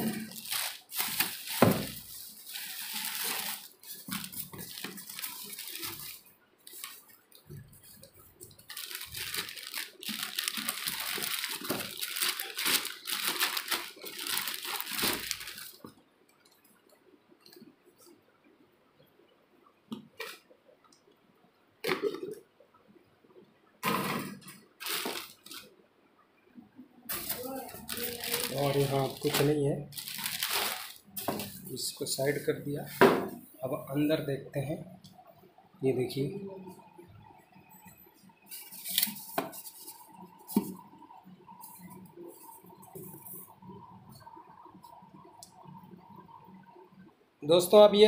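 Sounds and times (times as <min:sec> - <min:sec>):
bubble wrap crinkling: 0:00.0 - 0:15.9, 0:24.8 - 0:25.7, 0:27.1 - 0:32.5, 0:38.5 - 0:43.5.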